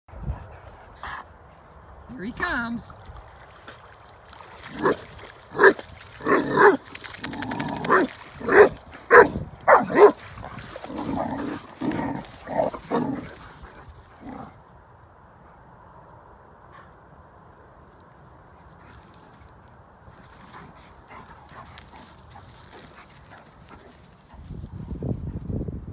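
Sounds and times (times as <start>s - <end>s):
dog barking: 7.9s - 10.2s.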